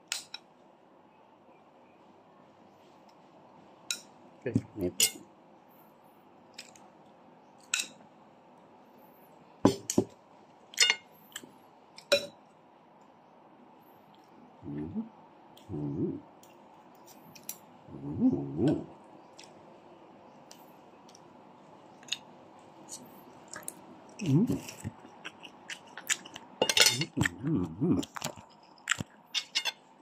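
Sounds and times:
cutlery clinking on plate: 10.8s - 11.1s, 12.1s - 12.4s, 26.6s - 27.2s, 29.4s - 29.8s
short low vocal sounds: 14.6s - 16.3s, 17.9s - 19.0s, 24.2s - 25.0s, 26.9s - 28.3s.

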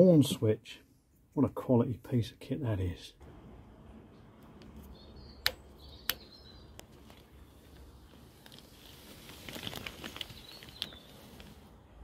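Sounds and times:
faint high bird chirps: 4.8s - 7.7s, 10.2s - 11.4s
sharp clicks: 5.4s - 6.9s
small clicks: 5.4s - 8.7s.

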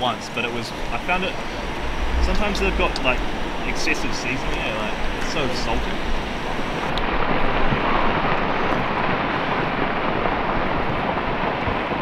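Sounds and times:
roar of falling ice: 1.4s - 3.4s.

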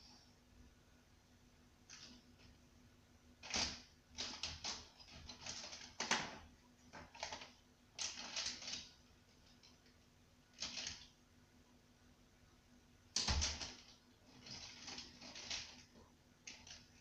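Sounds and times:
coloured pencils clattering: 13.2s - 17.0s.

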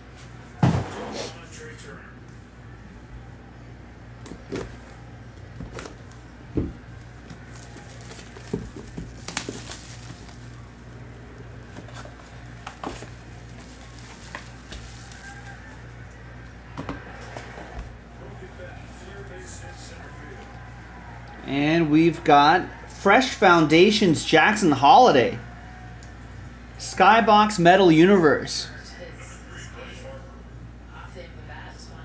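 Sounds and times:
steady low hum: 0.0s - 23.0s
plastic shrink-wrap rustling: 7.0s - 16.1s.

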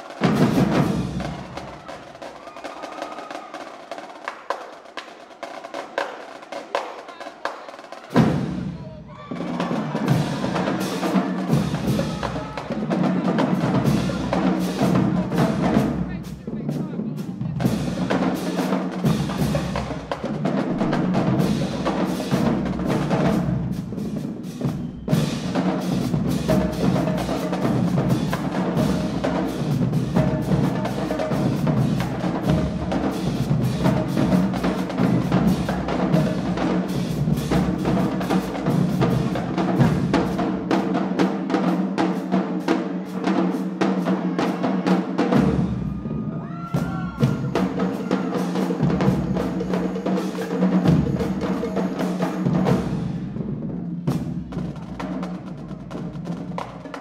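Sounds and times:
snare drums: 0.0s - 57.0s
tenor drums: 0.0s - 57.0s
bass drums: 8.2s - 40.8s.

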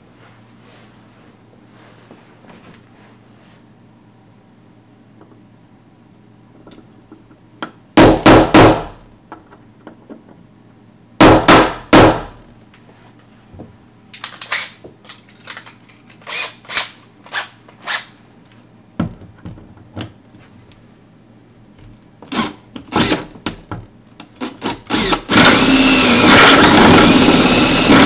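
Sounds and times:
hammer striking metal punch: 7.6s - 9.0s, 11.2s - 12.4s.

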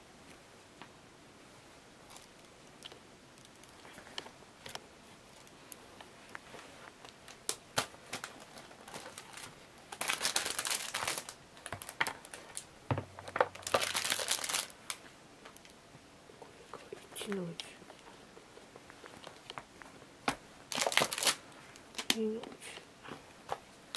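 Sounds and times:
packaging crinkling: 7.1s - 15.0s, 20.7s - 22.2s.

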